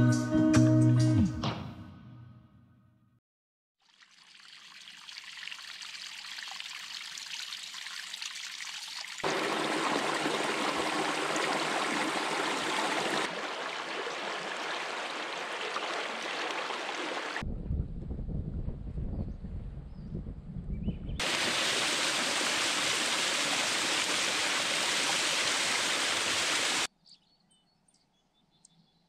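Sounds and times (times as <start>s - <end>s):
stream of running water: 3.8s - 17.4s, 21.2s - 26.9s.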